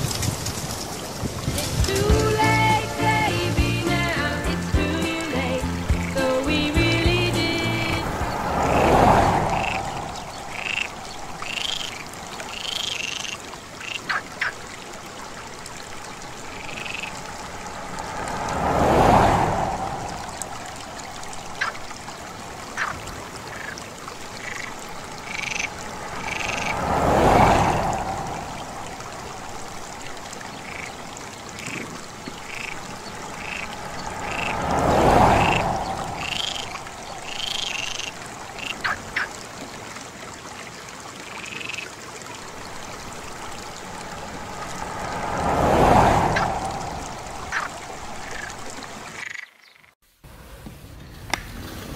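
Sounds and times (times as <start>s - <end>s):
rush of noise: 5.9s - 12.6s, 15.9s - 23.5s, 24.1s - 39.1s, 42.4s - 49.0s
frogs croaking: 8.1s - 50.0s.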